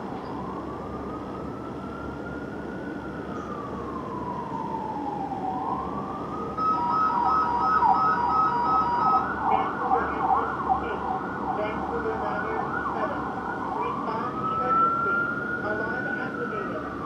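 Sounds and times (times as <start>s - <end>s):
fire engine siren wailing: 0.0s - 17.0s
pulsing siren tones: 0.3s - 17.0s
siren fast yelp: 6.6s - 17.0s.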